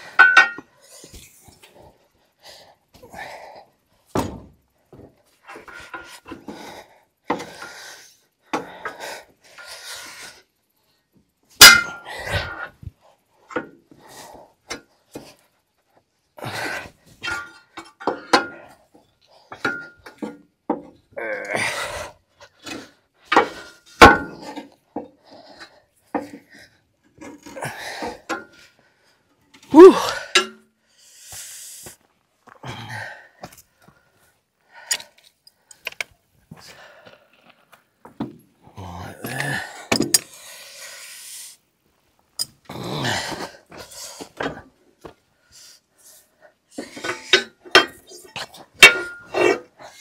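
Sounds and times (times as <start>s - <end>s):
tools clinking and scraping: 0.0s - 1.6s, 17.2s - 21.0s, 22.6s - 28.7s, 29.3s - 30.6s, 39.9s - 40.4s, 46.7s - 49.7s.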